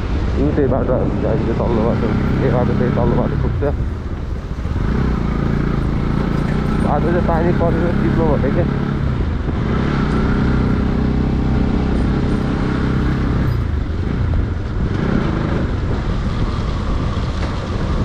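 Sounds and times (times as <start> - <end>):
road and wind noise: 0.0 - 18.0
vehicle engine running: 1.2 - 18.0.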